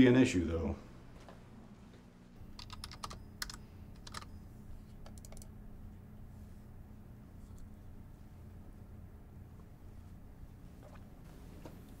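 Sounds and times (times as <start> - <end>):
typing on computer keyboard: 2.6 - 4.3, 5.0 - 5.5.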